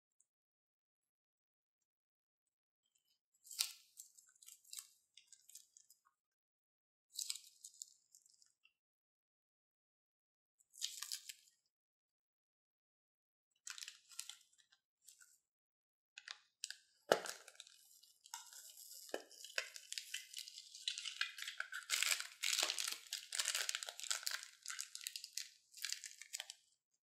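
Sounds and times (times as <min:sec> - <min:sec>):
plastic bag crinkling: 0:17.1 - 0:26.5.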